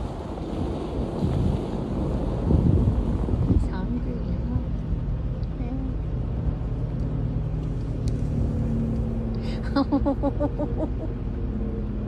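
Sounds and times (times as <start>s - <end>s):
steady low rumble: 0.0s - 12.0s
woman laughing: 9.4s - 11.2s.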